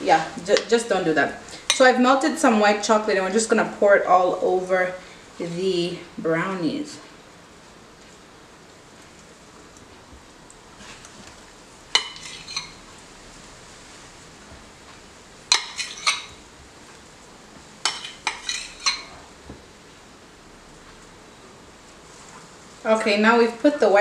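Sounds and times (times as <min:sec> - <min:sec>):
metal spoon clinking glass bowl: 0:12.0 - 0:12.8, 0:15.5 - 0:16.4, 0:17.9 - 0:19.1.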